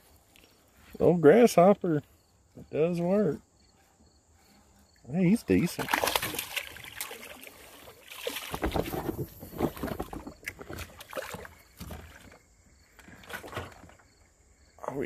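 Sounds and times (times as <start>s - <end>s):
fish splashing at water surface: 5.6s - 12.4s.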